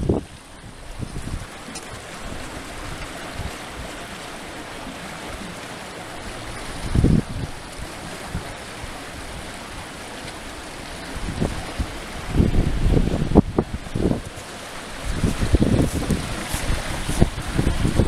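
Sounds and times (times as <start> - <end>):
wind buffeting microphone: 0.0 - 4.2, 4.8 - 18.0
floodwater rushing: 0.0 - 18.0.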